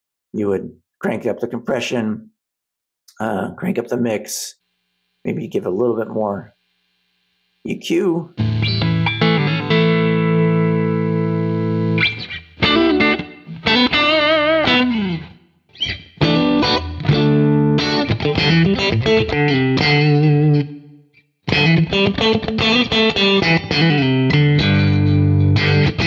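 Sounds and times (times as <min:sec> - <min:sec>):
electric guitar picked notes: 0:08.4 - 0:26.0.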